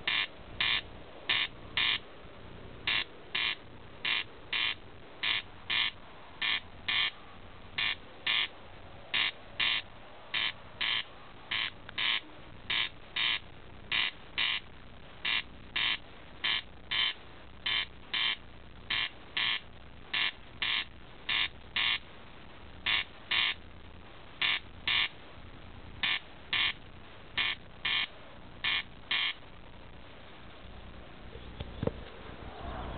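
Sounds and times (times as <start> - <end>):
corncrake rasping call: 0.0 - 2.0, 2.8 - 7.2, 7.8 - 22.0, 22.8 - 23.6, 24.4 - 25.2, 26.0 - 26.8, 27.4 - 29.4.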